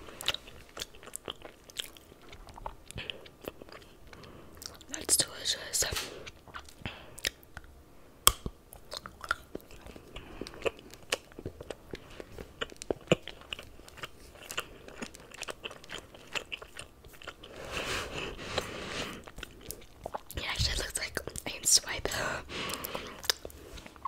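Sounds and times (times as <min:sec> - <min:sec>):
chocolate crunching: 0:06.2 - 0:20.4, 0:22.6 - 0:24.0
chocolate snapping: 0:07.2 - 0:10.0.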